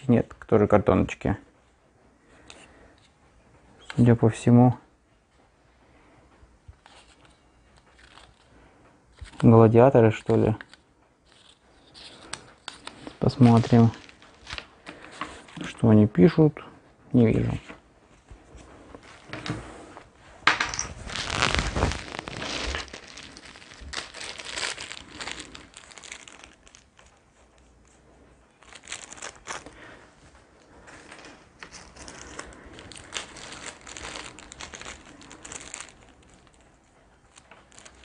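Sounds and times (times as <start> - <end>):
cardboard packaging crinkling: 6.8 - 8.5, 9.1 - 15.8, 20.6 - 38.0.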